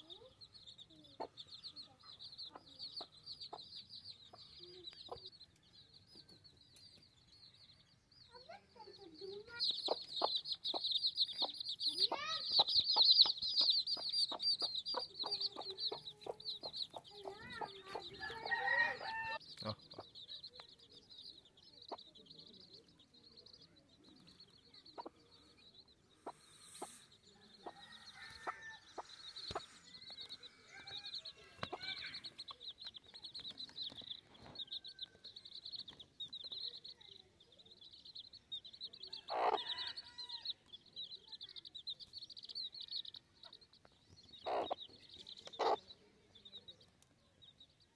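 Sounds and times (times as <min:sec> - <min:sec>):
chicks peeping: 0:00.0 - 0:47.9
hen clucking: 0:09.6 - 0:20.1, 0:39.2 - 0:39.8, 0:44.4 - 0:45.9.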